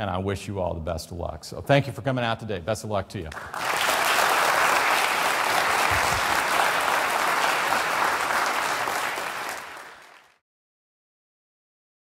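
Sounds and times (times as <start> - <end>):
audience applauding: 3.3 - 10.4.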